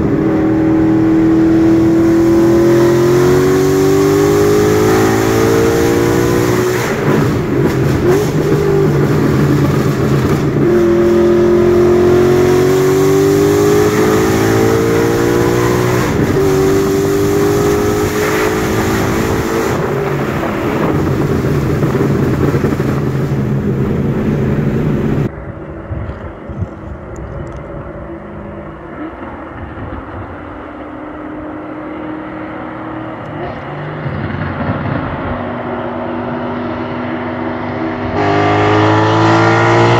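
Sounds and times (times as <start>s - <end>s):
car engine revving through gears: 0.0s - 25.3s, 28.6s - 39.9s.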